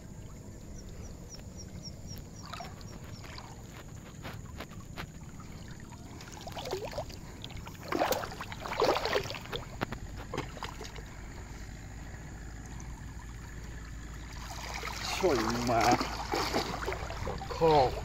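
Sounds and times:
water splashing and dripping: 2.0s - 18.0s.

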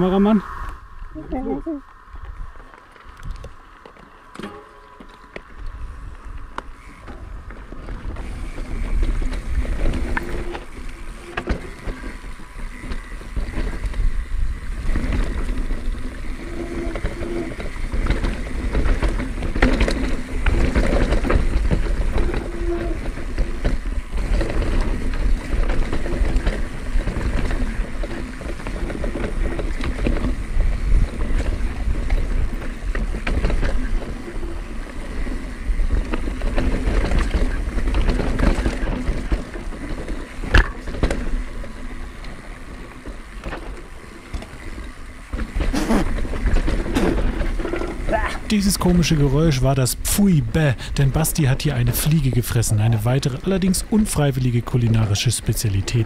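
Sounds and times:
steady rumble: 0.0s - 4.3s
bike rattling over roots: 2.1s - 56.0s
wind buffeting microphone: 5.2s - 43.4s.

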